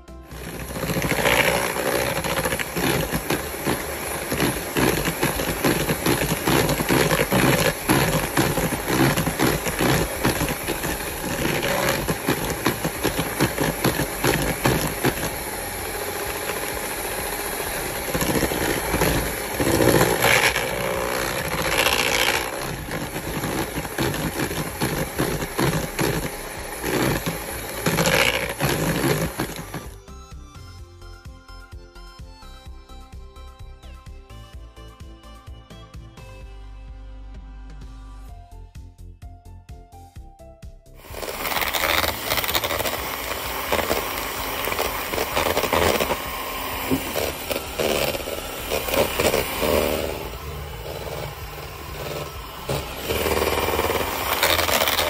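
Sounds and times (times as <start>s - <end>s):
electric hand mixer running: 0.0s - 30.2s, 41.0s - 55.0s
beaters scraping a bowl: 0.3s - 30.0s, 41.0s - 55.0s.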